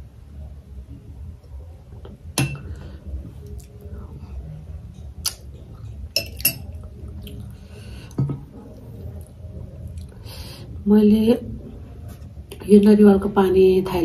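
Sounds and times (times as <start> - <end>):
metal spoon clinking against glass: 6.2 - 6.7.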